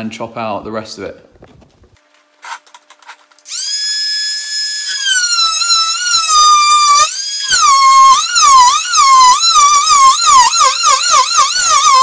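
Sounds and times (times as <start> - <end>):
oscillating multi-tool whining: 3.4 - 12.0.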